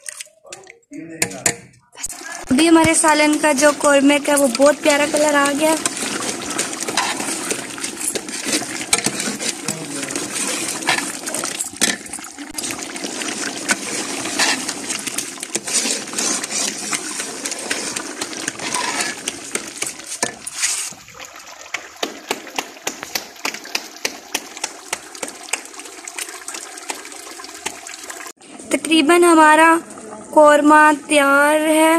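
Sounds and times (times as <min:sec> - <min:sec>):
spoon stirring in metal pot: 0:00.0 - 0:21.0
gravy squelching: 0:02.0 - 0:22.6.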